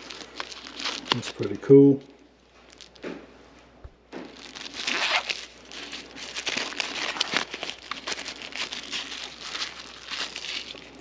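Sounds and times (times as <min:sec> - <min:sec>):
plastic packaging crinkling: 0:00.0 - 0:02.0, 0:02.6 - 0:03.1, 0:04.2 - 0:11.0.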